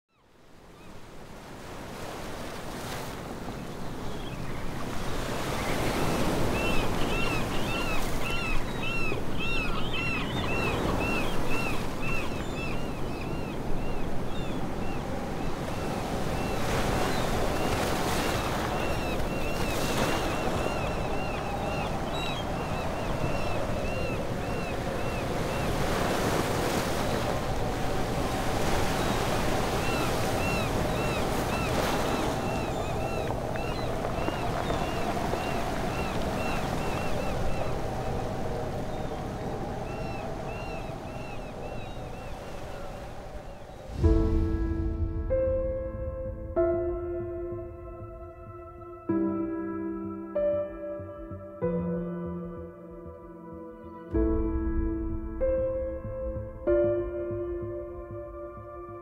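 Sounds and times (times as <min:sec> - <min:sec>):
wind: 0:00.1 - 0:59.0
sea waves washing: 0:00.6 - 0:49.3
seabird calling: 0:00.7 - 0:44.1.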